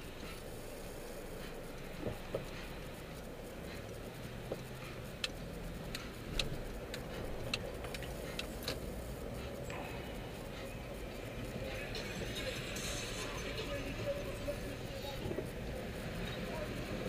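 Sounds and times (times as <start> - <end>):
in-cabin road and engine noise: 0.0 - 17.0
light sharp ticks: 0.1 - 9.8.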